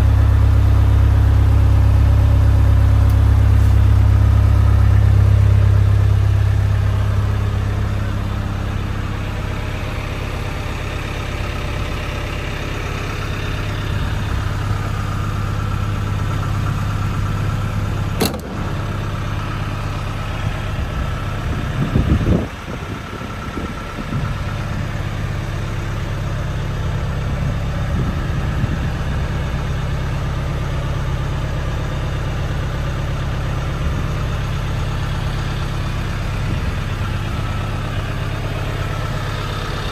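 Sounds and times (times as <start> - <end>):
engine idling: 0.0 - 39.9
sharp click: 18.2 - 18.8.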